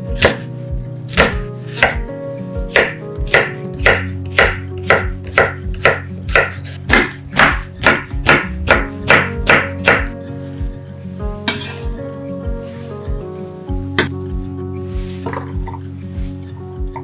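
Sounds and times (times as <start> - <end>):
soft background music: 0.0 - 17.0
knife chopping on wooden board: 0.2 - 0.5, 1.1 - 2.1, 2.7 - 10.2.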